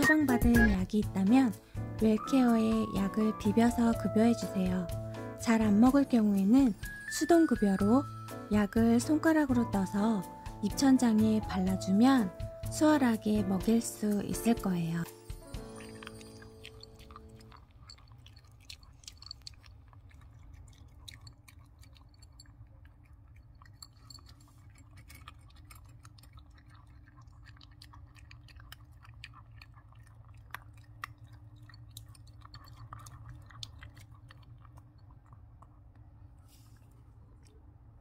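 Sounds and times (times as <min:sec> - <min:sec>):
dog crunching dry kibble: 0:15.6 - 0:36.1
faint low hum: 0:15.7 - 0:38.0.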